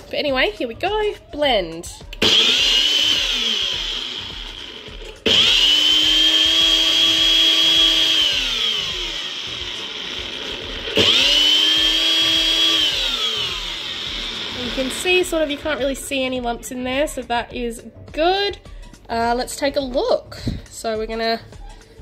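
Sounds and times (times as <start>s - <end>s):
blender motor whine: 2.1s - 15.9s.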